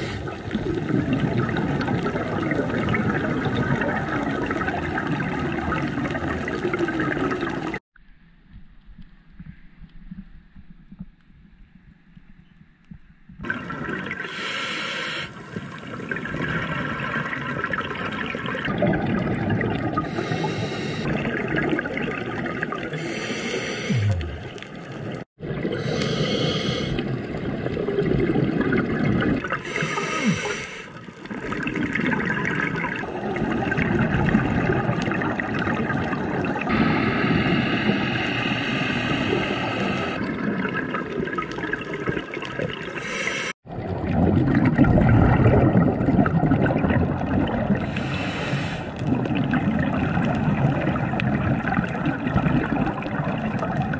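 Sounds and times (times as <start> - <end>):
underwater bubbling and gurgling: 0.0 - 53.9
hissing rush of air: 14.3 - 15.4, 20.1 - 21.1, 23.0 - 24.5, 25.8 - 27.0, 29.7 - 30.9, 36.7 - 40.2, 43.0 - 43.6, 47.9 - 49.0.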